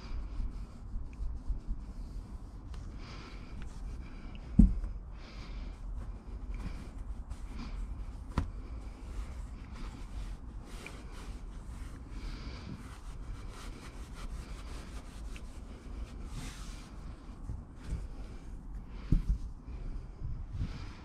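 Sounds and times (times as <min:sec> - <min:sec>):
low steady rumble: 0:00.0 - 0:21.0
fabric scuffing on wood: 0:08.2 - 0:08.8.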